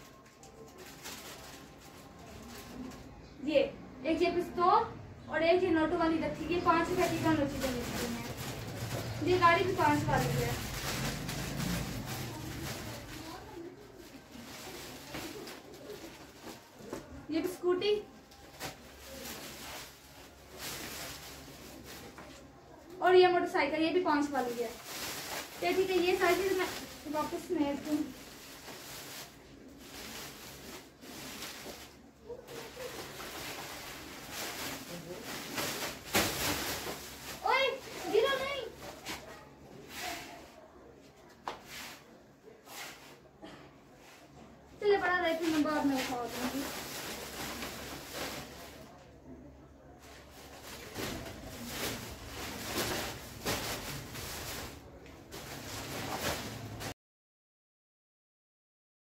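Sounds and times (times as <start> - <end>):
plastic-packaged toys rustling: 0.0 - 3.1, 6.3 - 16.8, 17.9 - 22.4, 23.4 - 39.3, 45.0 - 49.0, 50.0 - 56.9.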